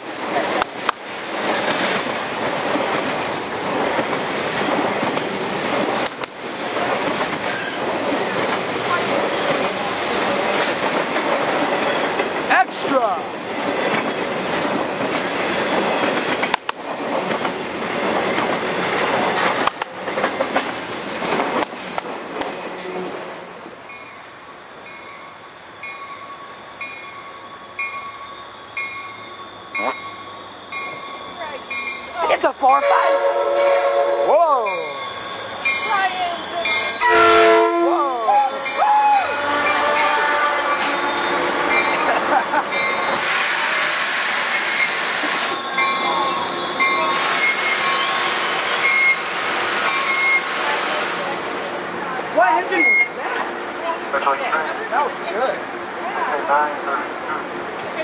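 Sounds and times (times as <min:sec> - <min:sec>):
freight train passing: 0:00.0 - 0:58.0
railroad crossing bell dinging: 0:23.8 - 0:43.2, 0:45.5 - 0:48.2, 0:48.8 - 0:49.2, 0:49.8 - 0:50.5, 0:52.7 - 0:54.4.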